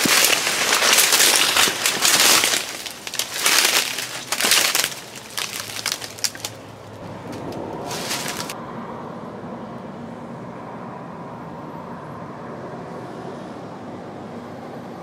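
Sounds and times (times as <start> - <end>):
undergrowth rustling and snapping: 0.0 - 8.6.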